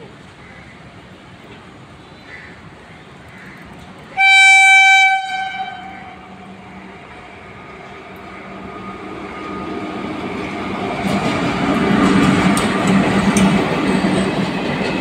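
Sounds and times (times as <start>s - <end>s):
train rumble: 2.6s - 15.0s
train horn blast: 4.2s - 6.5s.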